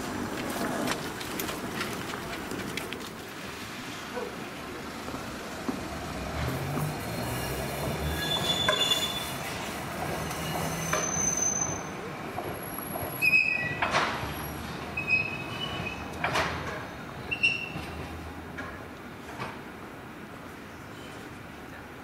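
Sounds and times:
tram motors humming: 0.0 - 20.8
wheels squealing: 6.2 - 18.2.

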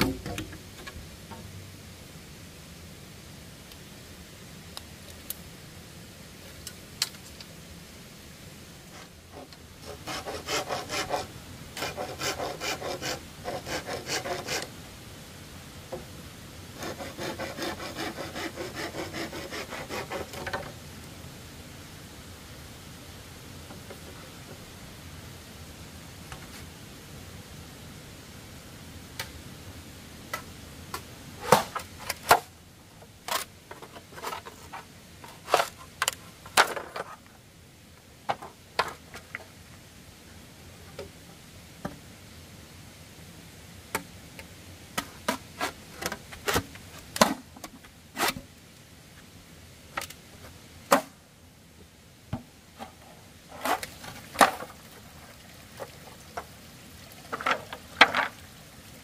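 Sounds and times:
machete chopping bamboo: 50.9 - 51.1.

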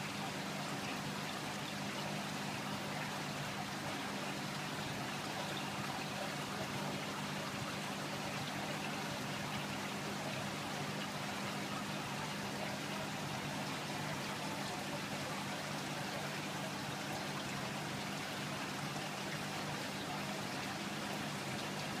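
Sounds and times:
circulating water rushing: 0.0 - 22.0
pump hum: 0.0 - 22.0.

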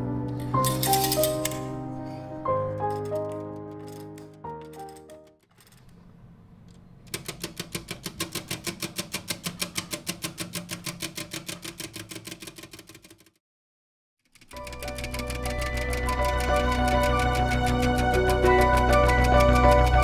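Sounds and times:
clockwork ticking: 7.1 - 13.3, 14.3 - 20.0.

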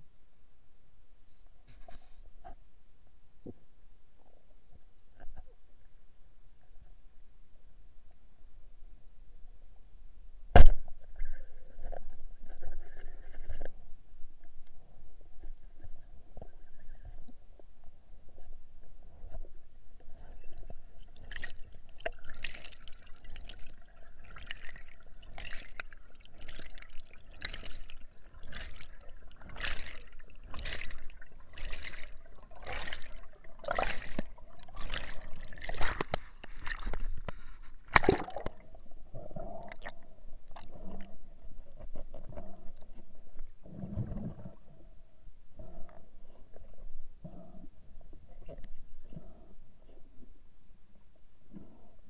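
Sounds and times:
soft water sound: 0.0 - 52.0
underwater air bubbles gurgling: 20.1 - 37.2.

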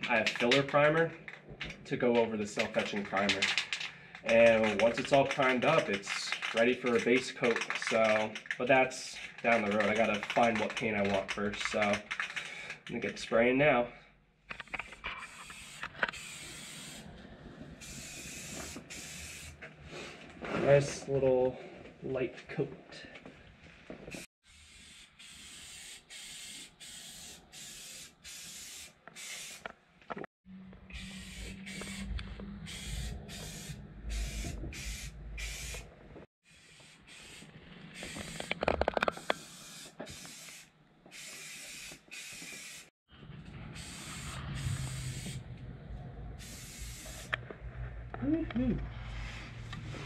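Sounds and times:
aerosol spray can hissing: 15.3 - 17.1, 17.8 - 19.6, 24.7 - 29.6, 31.0 - 35.8, 36.8 - 38.5, 39.2 - 42.9, 43.8 - 45.4, 46.4 - 47.4.

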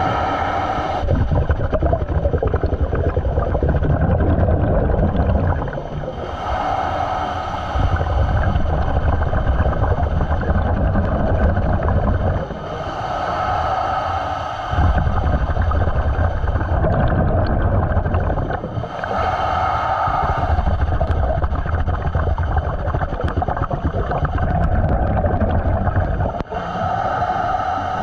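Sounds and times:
regulator hissing inhale: 0.0 - 1.2, 5.9 - 10.8, 11.7 - 17.6, 18.6 - 21.6, 26.3 - 28.0
regulator bubbling exhales: 0.0 - 28.0.

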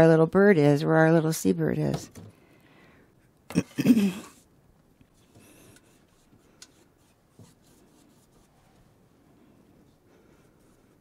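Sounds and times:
faint rubbing on canvas: 5.2 - 8.9.

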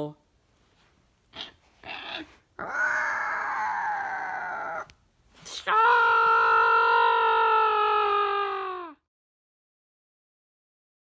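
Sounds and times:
bear-like growling roar: 2.6 - 4.9.

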